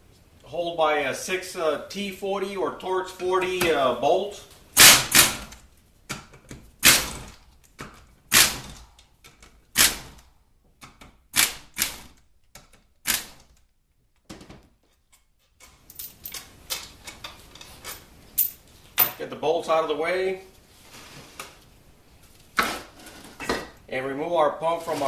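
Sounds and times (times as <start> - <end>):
pneumatic air ratchet bursts: 4.8 - 5.5, 9.8 - 10.2.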